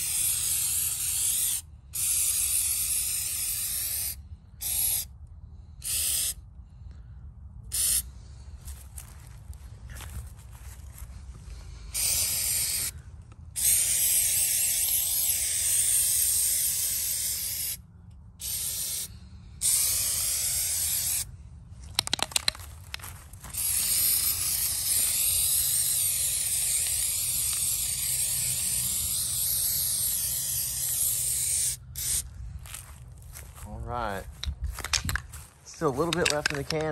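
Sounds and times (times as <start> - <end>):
aerosol can spraying: 0.0 - 5.1, 5.8 - 6.4, 7.7 - 8.0, 11.9 - 12.9, 13.6 - 17.8, 18.4 - 21.3, 23.5 - 32.2
sharp clicks: 21.9 - 23.0, 36.0 - 36.9.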